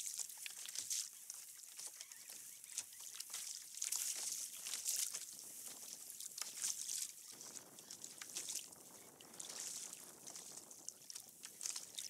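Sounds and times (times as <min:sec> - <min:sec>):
water splashing against kayak hull: 0:00.0 - 0:12.0
water dripping: 0:02.7 - 0:12.0.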